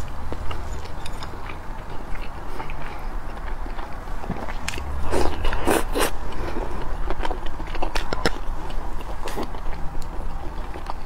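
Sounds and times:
person eating and chewing rice: 0:00.0 - 0:11.0
steady low hum: 0:00.0 - 0:11.0.

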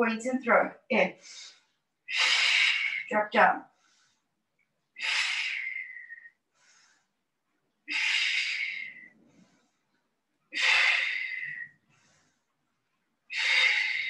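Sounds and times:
faint breaths: 0:01.1 - 0:14.0
woman exhaling forcefully: 0:13.4 - 0:14.0.

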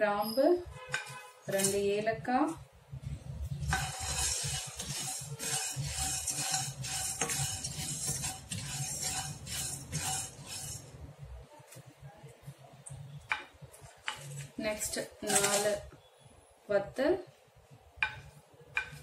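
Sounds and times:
spatula scraping pan: 0:00.9 - 0:02.0, 0:03.5 - 0:11.1, 0:14.1 - 0:15.9
seeds rattling in pan: 0:15.3 - 0:15.8.

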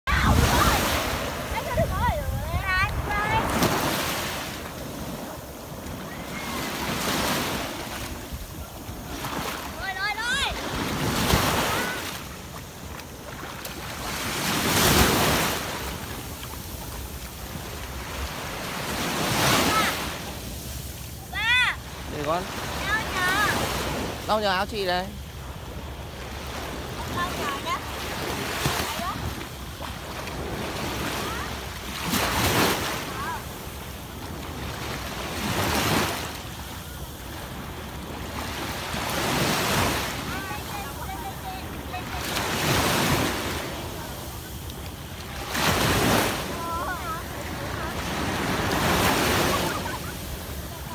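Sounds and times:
wind buffeting microphone: 0:00.0 - 0:12.0
small waves breaking on beach: 0:00.0 - 0:50.9.

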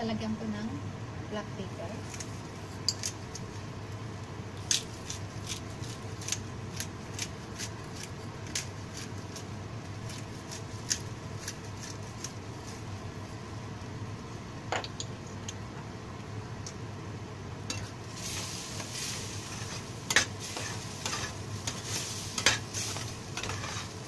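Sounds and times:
gravy simmering in a frying pan: 0:17.8 - 0:24.0.

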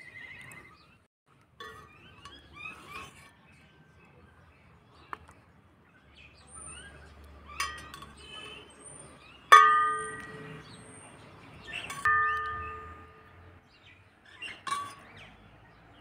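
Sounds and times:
birds chirping: 0:00.0 - 0:16.0
metal ladle striking a pot: 0:09.5 - 0:10.6, 0:11.8 - 0:13.3.

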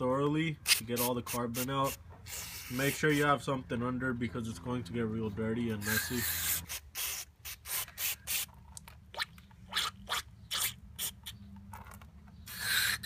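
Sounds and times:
aerosol spray hissing squirts: 0:00.7 - 0:03.1, 0:05.9 - 0:08.5.

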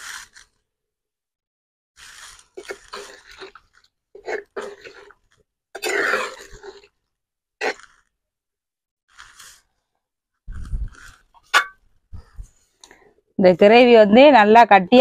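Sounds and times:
ladle stirring gravy in pot: 0:02.0 - 0:07.0.

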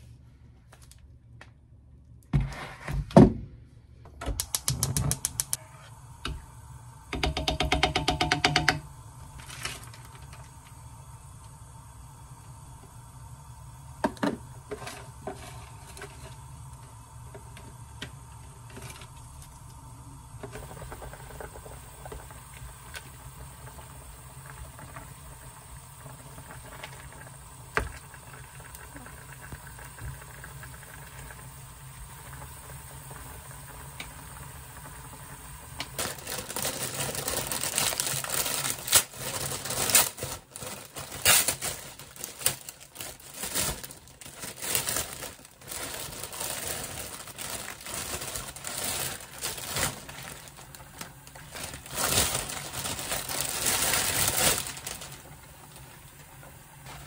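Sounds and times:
sharp click: 0:04.3 - 0:05.6
broth simmering in pan: 0:04.5 - 0:39.4, 0:46.3 - 0:51.9, 0:52.7 - 0:57.0
plastic bag crinkling: 0:36.0 - 0:55.9.

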